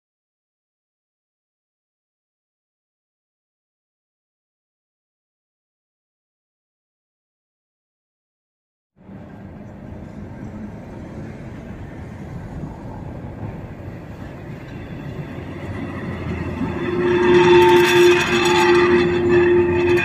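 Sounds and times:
steady whine: 9.0s - 20.0s
tram rumbling on cobbles: 9.0s - 20.0s.

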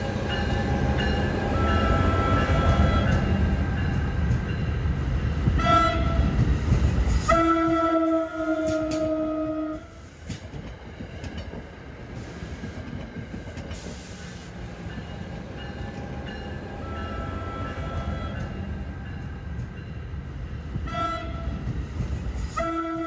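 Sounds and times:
train rumbling on tracks: 0.0s - 23.0s
train horn blast: 1.4s - 3.3s, 5.6s - 6.4s, 7.2s - 10.0s, 16.7s - 18.5s, 20.8s - 21.6s, 22.5s - 23.0s.

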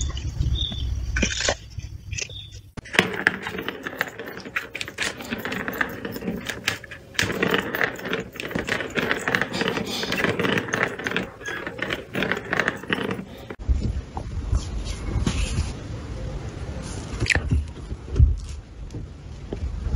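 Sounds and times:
balls clicking against plastic: 2.2s - 13.6s
plastic balls rolling and rattling: 2.8s - 13.6s.

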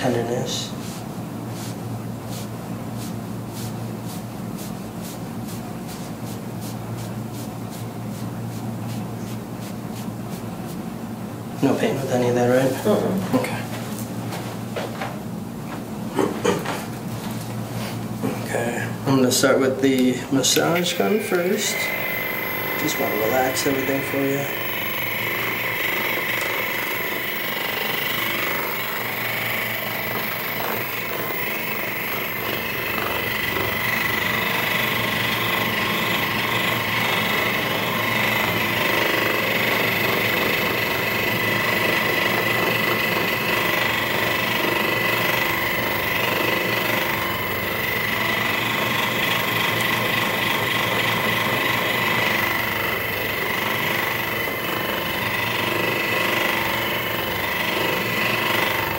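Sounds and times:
massage gun hammering: 20.5s - 58.9s.

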